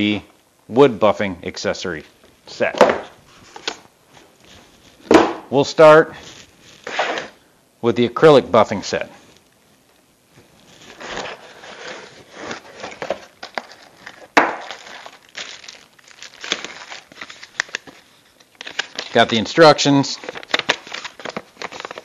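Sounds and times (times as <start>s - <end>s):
plastic bags crinkling: 10.6s - 22.0s.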